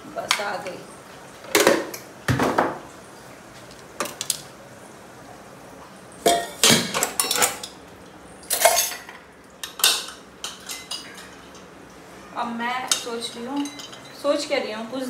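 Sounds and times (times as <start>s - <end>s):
dishes clattering: 1.5s - 2.8s, 6.2s - 7.8s, 8.5s - 11.7s
dishes knocking on counter: 1.5s - 2.8s
light clinks of utensils: 6.3s - 7.8s, 8.5s - 11.7s, 12.9s - 14.2s.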